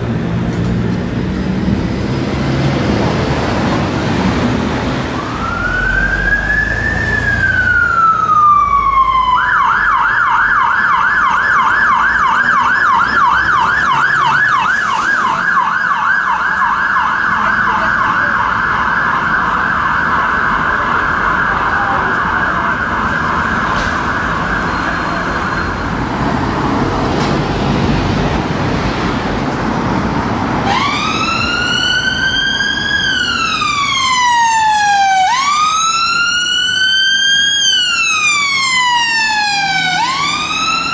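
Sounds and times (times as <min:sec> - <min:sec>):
street traffic: 0:00.0 - 0:40.9
fire engine siren wailing and yelping: 0:04.8 - 0:26.4, 0:30.6 - 0:40.9
ambulance siren wailing: 0:04.9 - 0:26.2, 0:30.6 - 0:40.9.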